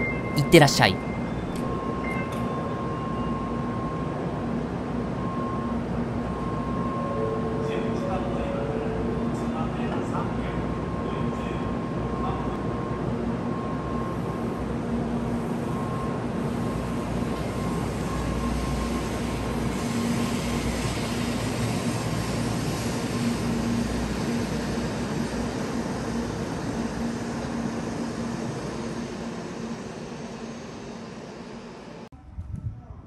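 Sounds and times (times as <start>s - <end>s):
train electric hum and rumble: 1.0s - 33.0s.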